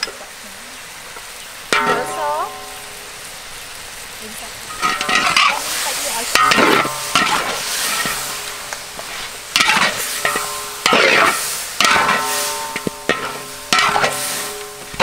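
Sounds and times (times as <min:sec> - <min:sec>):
meat sizzling: 0:00.0 - 0:15.0
metal spatula scraping wok: 0:04.7 - 0:15.0.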